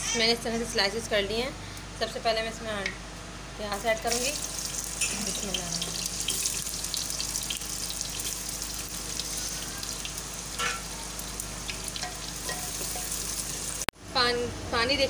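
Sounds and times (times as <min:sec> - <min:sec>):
onions sizzling in hot oil: 0:03.8 - 0:13.9.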